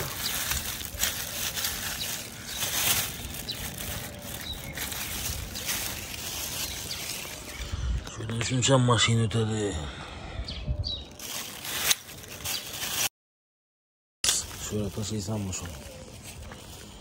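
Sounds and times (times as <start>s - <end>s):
plastic bag crinkling: 0.0s - 7.6s, 11.1s - 13.1s, 14.4s - 17.0s.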